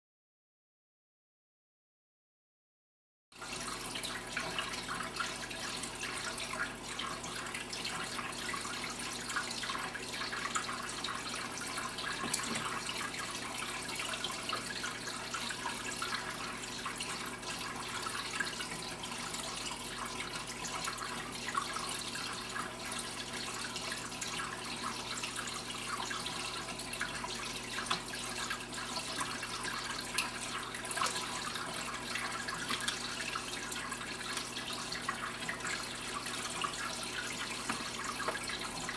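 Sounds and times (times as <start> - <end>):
water trickling and splashing: 3.4 - 38.9.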